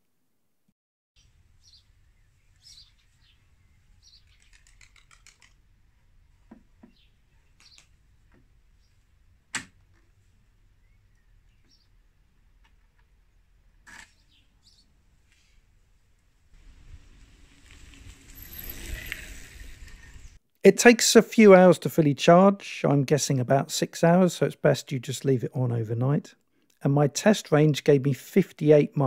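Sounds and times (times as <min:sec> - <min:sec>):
birds chirping: 0:01.2 - 0:05.4, 0:06.8 - 0:08.0, 0:10.7 - 0:12.3.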